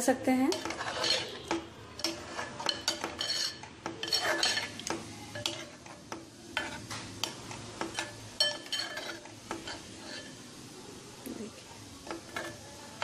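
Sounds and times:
ladle clinking and scraping pot: 0.5s - 10.4s, 12.0s - 13.0s.

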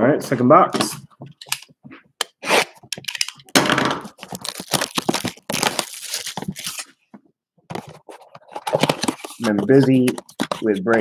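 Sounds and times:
cardboard box being torn open: 4.2s - 6.8s.

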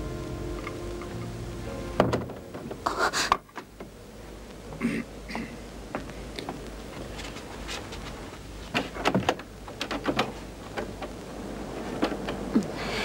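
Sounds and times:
steady low hum: 0.0s - 8.7s.

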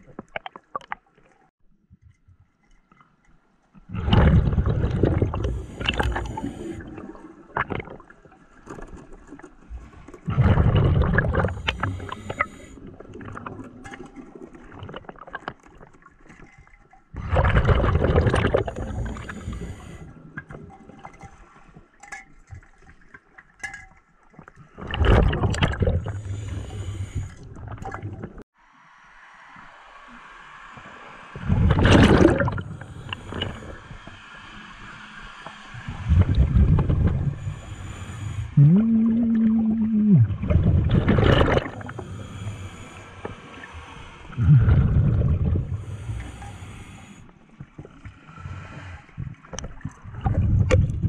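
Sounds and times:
exhaled bubbles rushing underwater: 3.9s - 8.3s, 9.8s - 15.5s, 17.2s - 20.0s, 24.8s - 28.4s, 31.4s - 33.9s, 35.8s - 47.0s, 49.2s - 51.0s.

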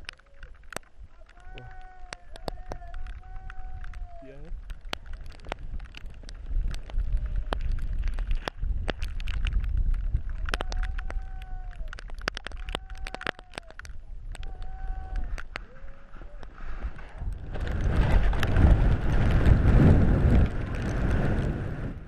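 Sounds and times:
wind buffeting microphone: 0.0s - 22.0s
skis and poles clicking: 4.7s - 21.3s.

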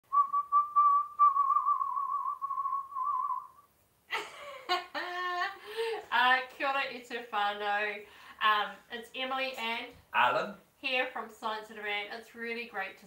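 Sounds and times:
person whistling high note: 0.1s - 3.7s
person speaking: 8.4s - 10.6s.

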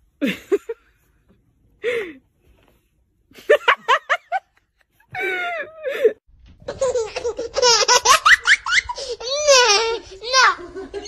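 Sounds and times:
person laughing: 3.4s - 6.2s.

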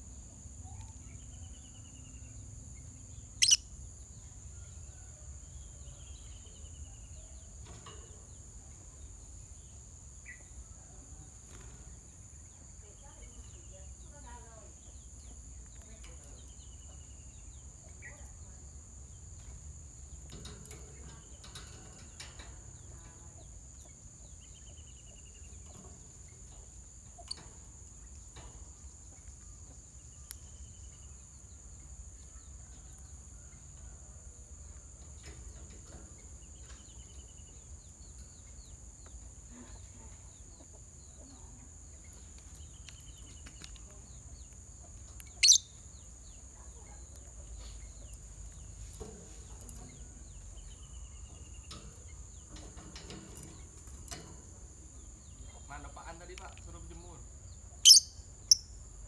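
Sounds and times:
lovebirds chirping: 0.0s - 10.8s, 34.7s - 59.0s.

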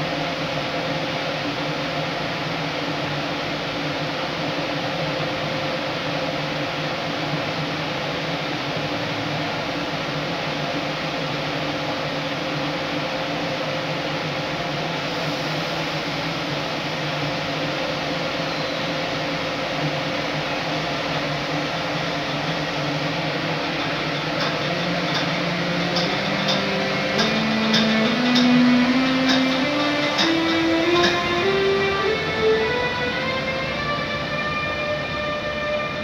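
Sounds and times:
locomotive cooling fans humming: 0.0s - 36.0s
rising scale of converter tones: 23.7s - 36.0s.

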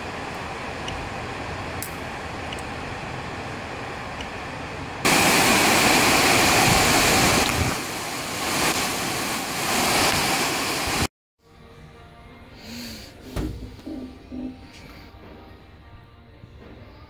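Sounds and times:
rain pouring down: 0.0s - 11.1s.

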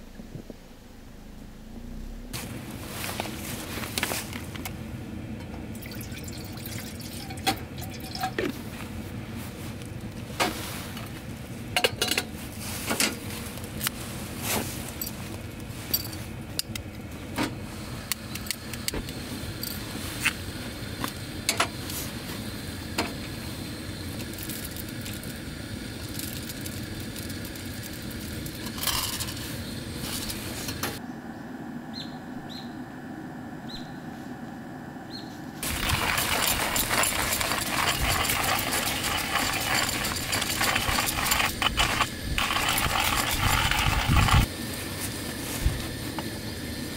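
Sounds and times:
water poured into metal pot: 5.8s - 8.3s
metal gear clinking: 35.6s - 44.5s.

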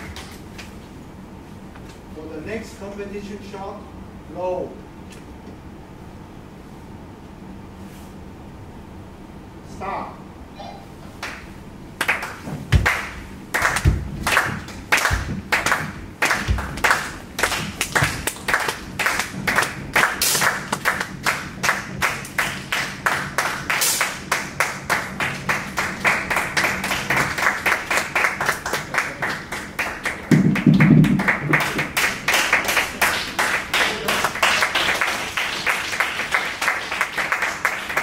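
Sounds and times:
hands clapping: 11.2s - 38.0s.

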